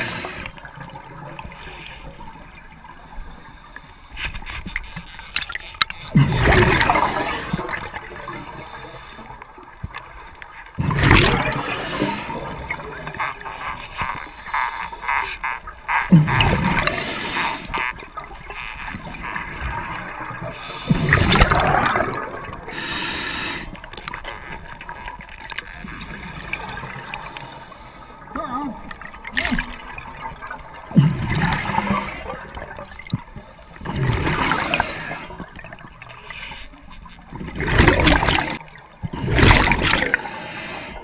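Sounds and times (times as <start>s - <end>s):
breathing through regulator: 0.0s - 0.6s, 2.9s - 4.5s, 6.8s - 9.5s, 11.4s - 13.0s, 16.8s - 17.8s, 20.5s - 21.7s, 22.7s - 23.9s, 27.0s - 28.3s, 31.3s - 32.6s, 33.3s - 35.5s, 40.0s - 41.0s
exhaled bubbles rushing: 6.1s - 8.3s, 10.7s - 13.5s, 16.1s - 17.1s, 19.0s - 22.7s, 28.8s - 36.1s, 37.3s - 40.3s.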